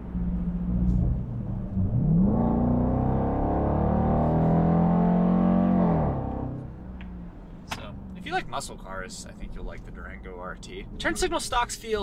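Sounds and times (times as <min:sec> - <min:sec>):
car engine accelerating: 0:00.0 - 0:08.4.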